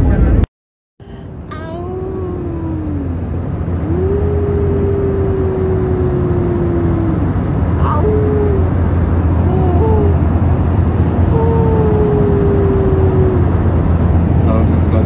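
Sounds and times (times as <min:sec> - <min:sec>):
airliner cabin drone: 0:01.0 - 0:15.0
baby cooing: 0:01.5 - 0:03.2, 0:03.8 - 0:08.8, 0:09.4 - 0:10.2, 0:11.2 - 0:13.5.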